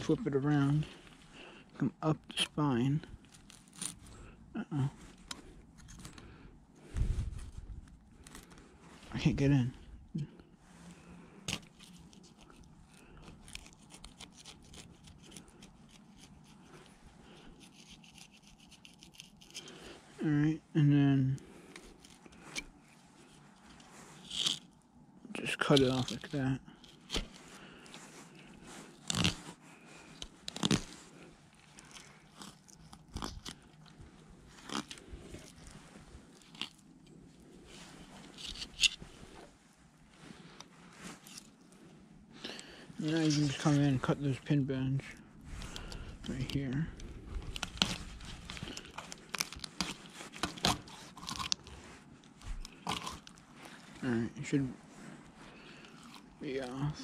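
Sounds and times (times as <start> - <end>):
knife scraping fish bones: 13.4 - 16.6, 17.4 - 19.7, 29.0 - 29.4.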